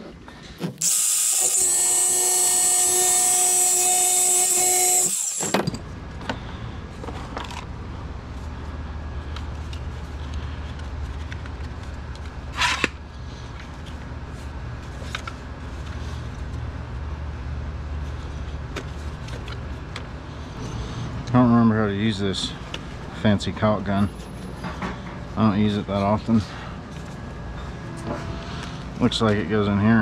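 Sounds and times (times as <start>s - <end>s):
angle grinder cutting metal rod: 0.8s - 5.7s
low steady hum: 5.6s - 30.0s
brief scrape: 27.6s - 28.9s.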